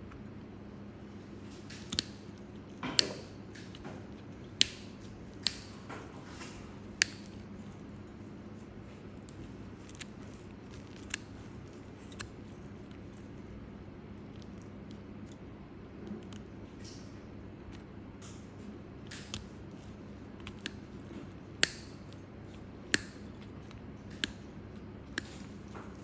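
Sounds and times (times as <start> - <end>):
faint steady hum: 0.0 - 26.0
nail nippers snipping toenail: 1.7 - 5.9, 6.9 - 7.9, 9.2 - 13.2, 19.0 - 26.0.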